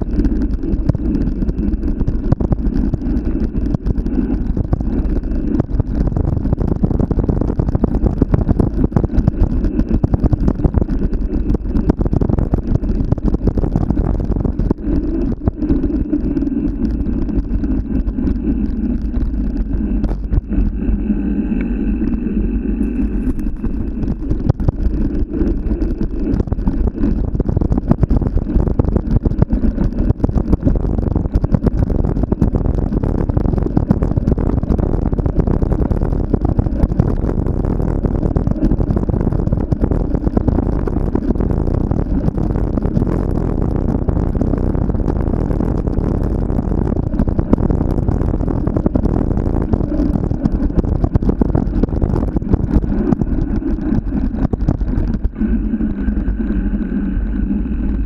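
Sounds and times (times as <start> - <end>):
faint steady hum: 0.0 - 58.0
low rumble: 0.0 - 58.0
wind buffeting microphone: 0.0 - 58.0.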